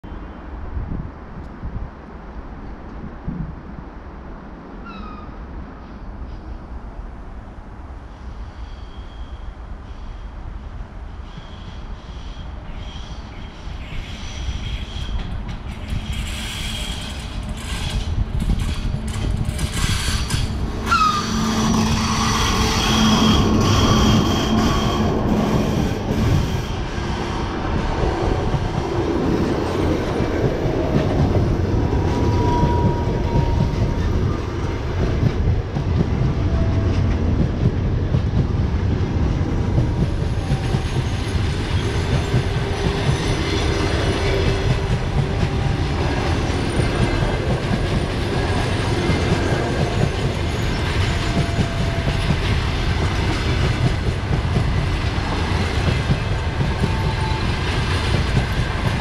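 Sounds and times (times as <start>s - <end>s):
electric locomotive humming past: 0.1s - 59.0s
train coaches rumbling: 9.6s - 59.0s
wheel squeal: 14.0s - 18.9s, 19.5s - 26.8s
wheels clacking over rail joints: 14.9s - 59.0s.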